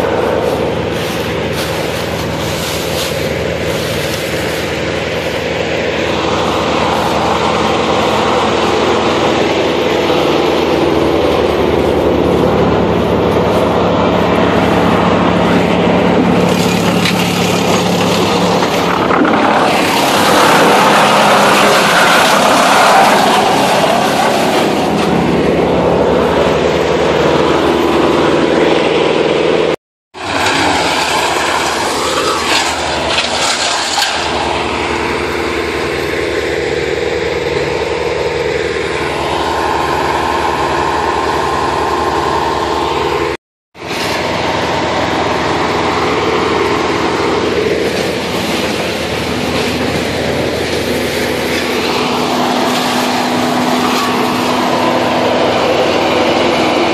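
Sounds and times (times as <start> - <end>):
branches going through chipper: 0.0 - 56.9
wood chipper engine drone: 0.0 - 56.9.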